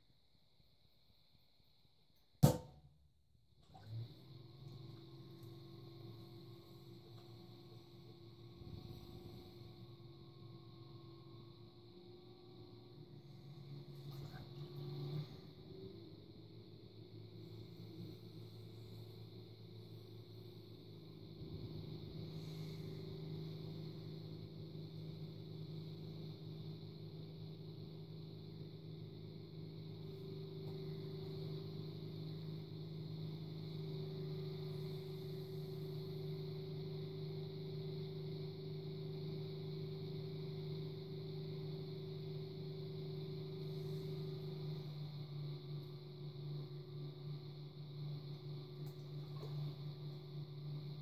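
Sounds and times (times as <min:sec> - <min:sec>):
faint high-pitched whine: 0:03.7 - 0:51.0
potter's wheel motor humming: 0:03.7 - 0:51.0.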